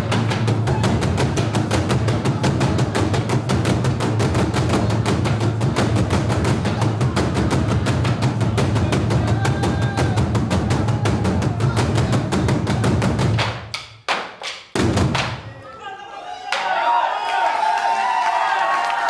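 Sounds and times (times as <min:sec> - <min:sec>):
drum ensemble beating: 0:00.0 - 0:15.8.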